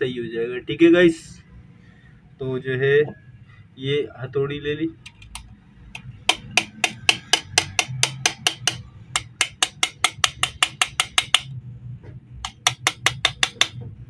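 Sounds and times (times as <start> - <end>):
hammer tapping on metal: 5.1 - 11.5, 12.4 - 13.9.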